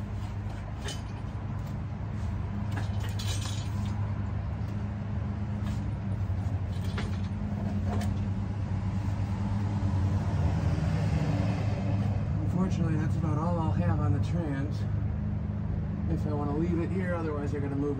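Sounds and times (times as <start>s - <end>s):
hoist chain clinking and rattling: 0.0s - 1.9s, 2.5s - 4.8s, 6.3s - 8.3s
low mechanical hum: 0.0s - 17.9s.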